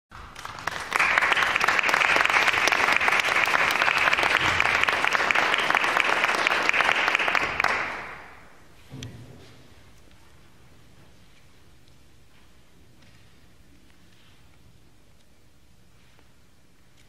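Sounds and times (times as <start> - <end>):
audience applauding: 0.2 - 8.5.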